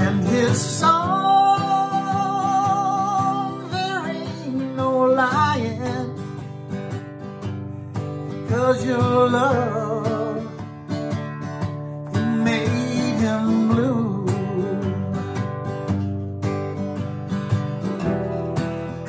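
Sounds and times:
man singing a ballad: 0.0s - 6.4s, 8.3s - 10.7s, 12.0s - 15.4s
strummed acoustic guitar: 0.0s - 19.0s.

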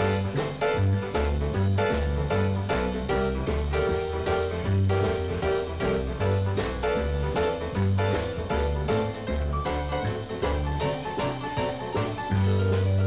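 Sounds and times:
jazz piano playing: 0.0s - 13.0s.

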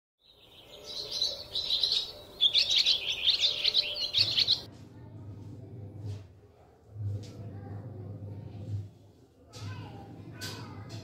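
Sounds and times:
birds twittering: 0.2s - 4.7s
faint low hum: 3.9s - 11.0s.

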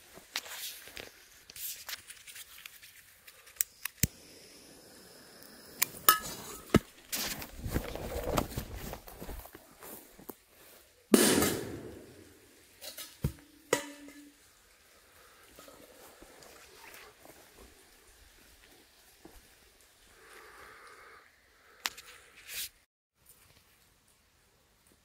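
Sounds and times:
feet rustling through grass: 6.3s - 10.9s
firecracker bang with echo: 11.1s - 12.3s.

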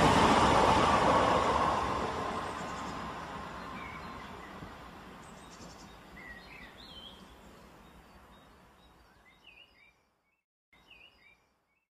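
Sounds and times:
bird chirps: 3.7s - 11.9s.

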